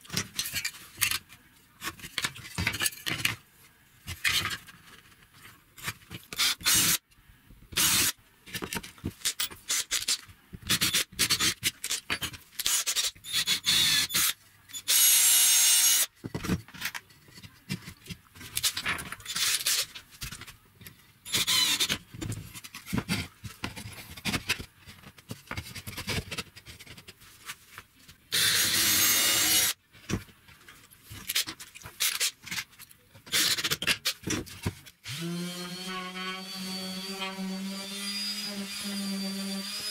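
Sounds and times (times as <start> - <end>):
cordless drill running: 28.3 - 29.7.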